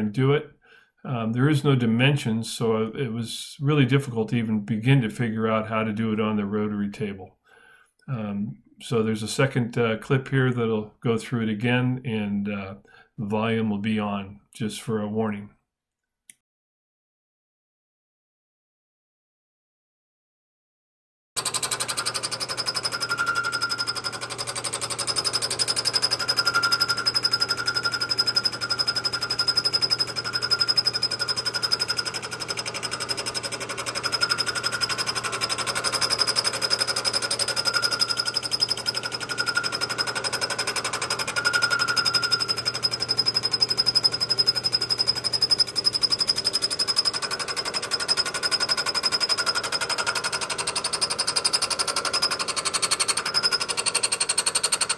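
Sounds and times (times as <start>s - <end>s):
milling machine cutting metal: 21.4s - 54.9s.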